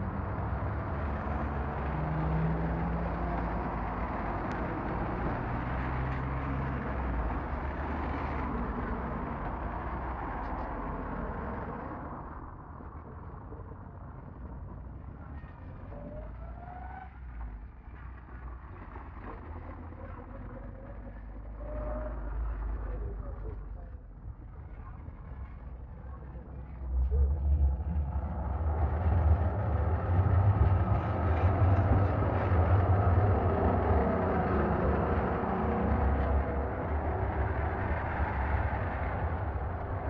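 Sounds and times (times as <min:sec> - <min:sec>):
cars passing close by: 0:00.0 - 0:12.6, 0:27.9 - 0:40.0.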